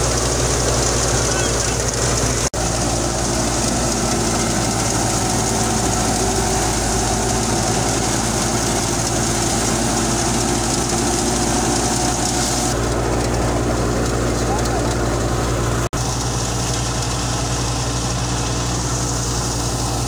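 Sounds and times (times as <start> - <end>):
thresher high hiss: 0.0 - 12.8
tractor engine drone: 0.0 - 20.0.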